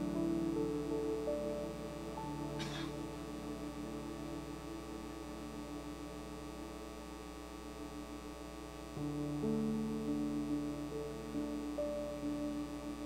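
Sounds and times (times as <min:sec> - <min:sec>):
held keyboard chords: 0:00.0 - 0:05.9.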